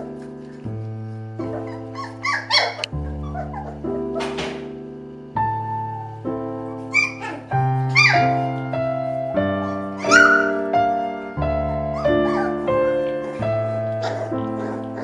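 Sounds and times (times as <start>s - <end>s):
piano slow sustained chords: 0.0s - 15.0s
puppy yipping: 1.4s - 4.4s, 6.8s - 8.5s, 9.6s - 10.7s, 11.9s - 12.7s, 14.0s - 15.0s.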